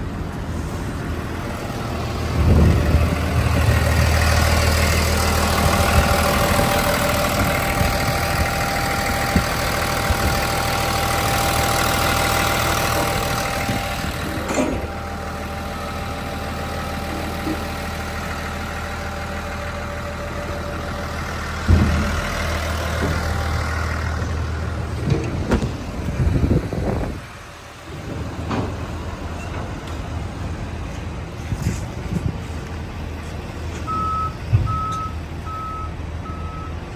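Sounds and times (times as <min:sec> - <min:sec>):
diesel engine idling: 0:00.0 - 0:36.9
knocks and clatters: 0:21.6 - 0:23.5, 0:24.9 - 0:25.8.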